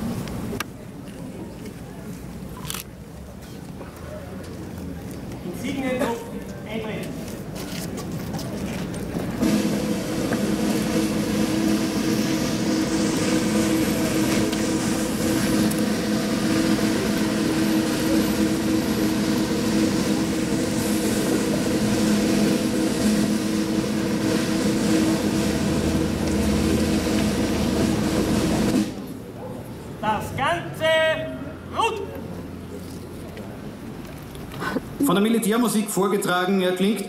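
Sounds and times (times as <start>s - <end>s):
hiss: 9.4s - 29.1s
engine droning: 9.4s - 29.3s.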